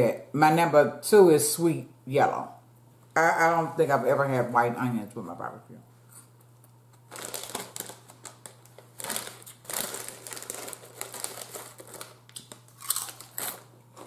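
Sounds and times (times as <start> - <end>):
chip bag crinkling: 7.0 - 14.0.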